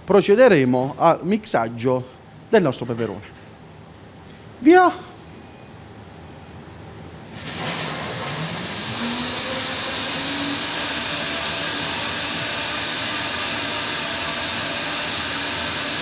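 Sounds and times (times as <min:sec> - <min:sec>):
blender motor running: 0:07.3 - 0:16.0.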